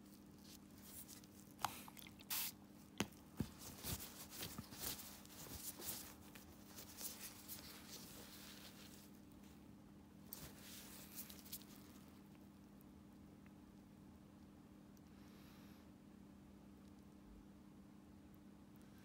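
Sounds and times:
gauze rustling: 0.1s - 9.6s.

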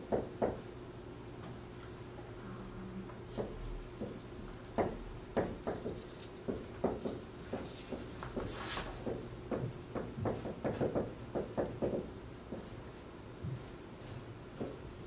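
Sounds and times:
marker writing on whiteboard: 3.3s - 12.8s, 14.1s - 15.0s.

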